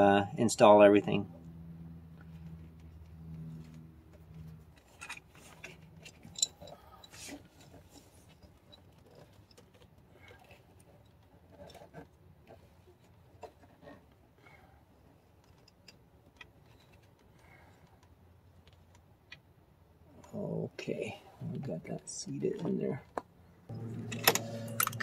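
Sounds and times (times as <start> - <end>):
faint clicks and rubbing of hose: 2.1 - 19.5.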